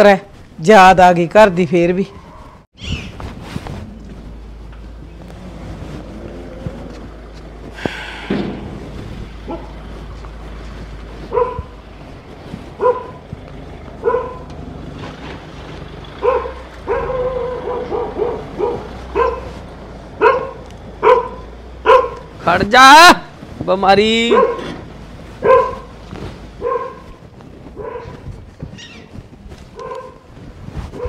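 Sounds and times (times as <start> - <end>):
dog barking: 2.2 - 2.6, 9.5 - 9.8, 11.3 - 11.7, 12.8 - 13.2, 14.0 - 14.5, 16.2 - 19.6, 20.2 - 22.2, 24.3 - 24.8, 25.4 - 25.9, 26.6 - 27.1, 27.8 - 28.2, 29.8 - 30.2.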